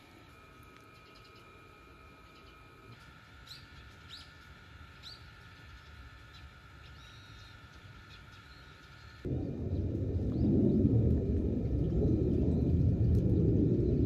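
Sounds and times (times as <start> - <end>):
bird chirps: 2.2 - 9.2
sudden low rumble: 9.3 - 14.0.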